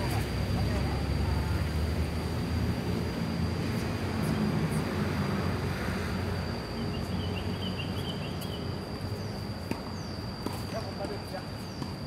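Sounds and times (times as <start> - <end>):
faint high whine: 0.0 - 12.0
bird chirping: 6.8 - 9.4.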